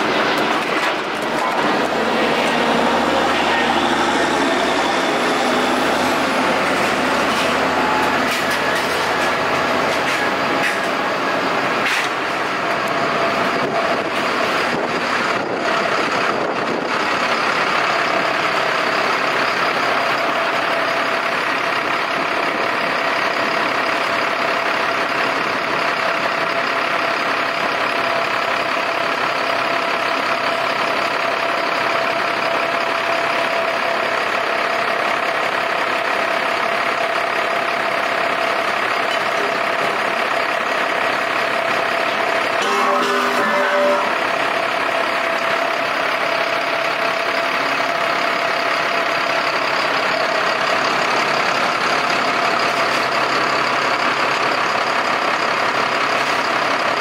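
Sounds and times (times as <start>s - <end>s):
steady whine: 0.0s - 15.6s
heavy diesel engine running: 0.0s - 57.0s.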